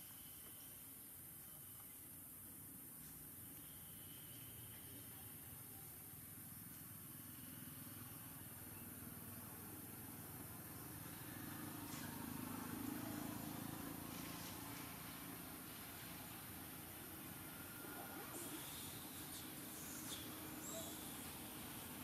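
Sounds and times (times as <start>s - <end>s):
distant vehicle passing: 10.6s - 22.0s.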